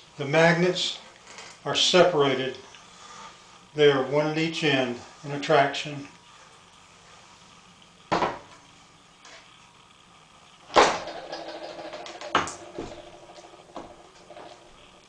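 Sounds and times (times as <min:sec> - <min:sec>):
wooden and metal parts knocking: 0:10.8 - 0:14.6.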